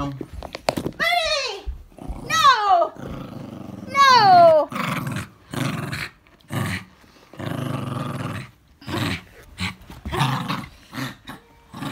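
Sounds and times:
small dog growling: 1.9 - 11.9.

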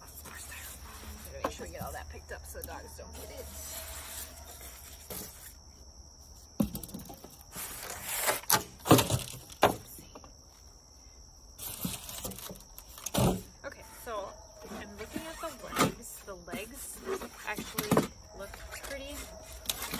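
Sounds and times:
styrofoam pieces knocking and squeaking: 6.6 - 9.8, 11.6 - 13.5.

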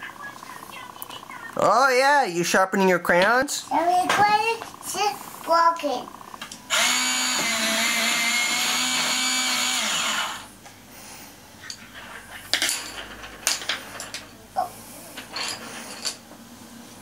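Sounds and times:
electric pencil sharpener whine: 4.7 - 10.6.

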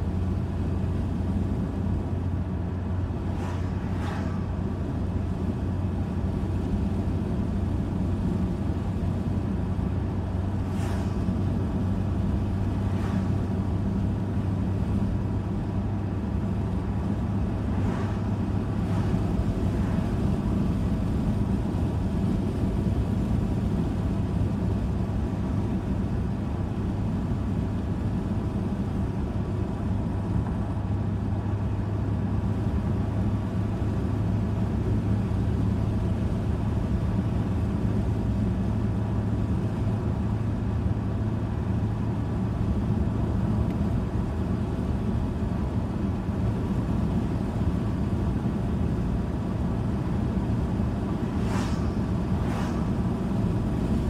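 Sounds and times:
car tyre and engine drone: 0.0 - 54.0
vehicles whooshing past: 2.7 - 5.2, 10.6 - 21.8, 49.8 - 54.0.

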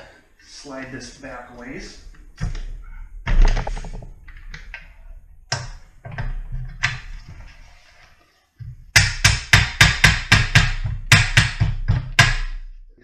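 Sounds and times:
metal frame thudding and scraping: 2.4 - 8.9.

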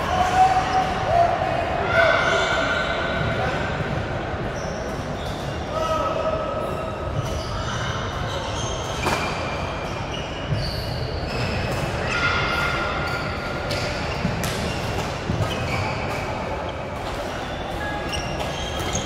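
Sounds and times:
background murmur: 0.0 - 19.0
shoes squeaking on court floor: 4.5 - 5.7, 7.0 - 12.2, 13.0 - 19.0.

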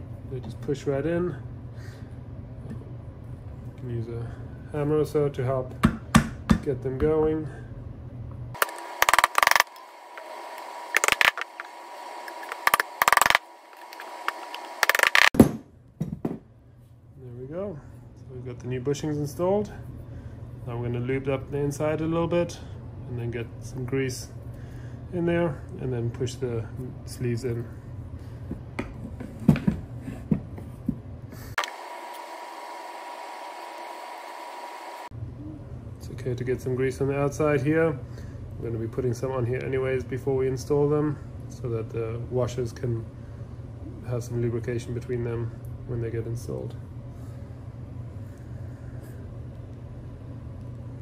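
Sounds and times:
bushings creaking: 8.6 - 15.4
faint high hum: 29.8 - 51.0.

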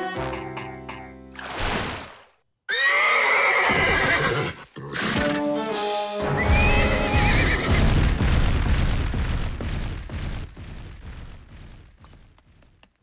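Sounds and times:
cartoon horse whinny: 2.7 - 5.3
heavy rumbling: 7.7 - 12.0.

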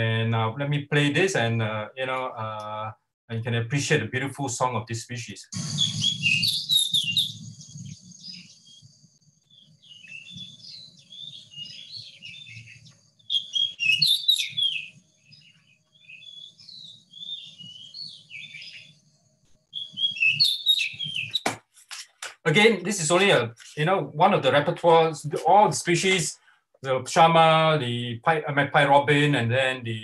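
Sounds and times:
recorded bird song playback: 0.0 - 21.5.

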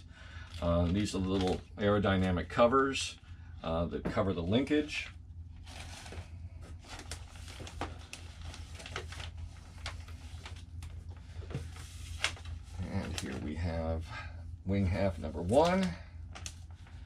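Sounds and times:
steady low hum: 0.0 - 17.0
plastic packaging crinkling: 5.6 - 13.6.

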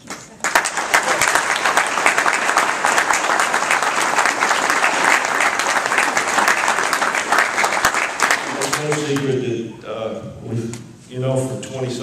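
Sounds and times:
audience applauding: 0.2 - 9.4.

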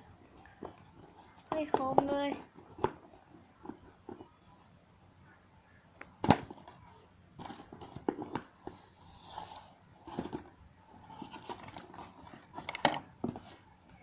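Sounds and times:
scraping rustles: 6.5 - 13.7.

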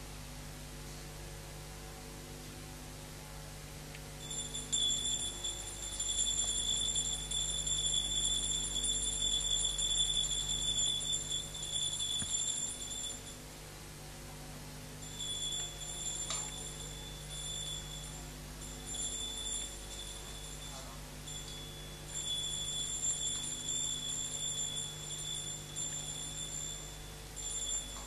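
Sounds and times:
low electrical hum: 0.0 - 28.0
hand bell ringing: 4.2 - 13.4, 15.0 - 28.0.

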